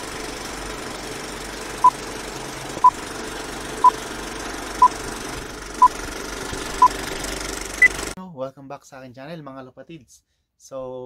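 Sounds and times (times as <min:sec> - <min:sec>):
film projector rattle and whirr: 0:00.0 - 0:08.2.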